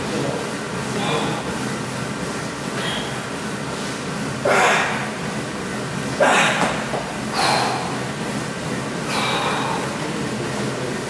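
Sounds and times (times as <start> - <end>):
steady background hum: 0.0 - 11.0
man breathing hard: 7.3 - 8.1, 9.0 - 10.0.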